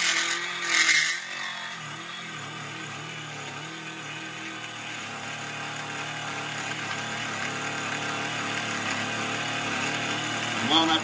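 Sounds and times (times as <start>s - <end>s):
end mill cutting metal: 0.0s - 4.2s.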